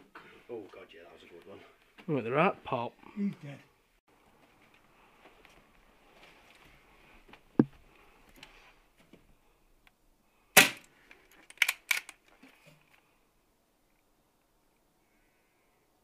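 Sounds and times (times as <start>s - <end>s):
air rifle firing: 10.6s - 10.9s.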